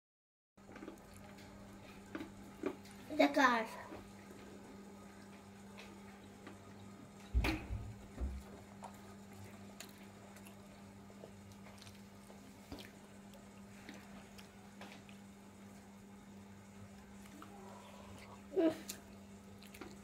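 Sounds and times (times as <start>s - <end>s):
steady low hum: 0.6s - 20.0s
dull thump: 7.3s - 8.4s.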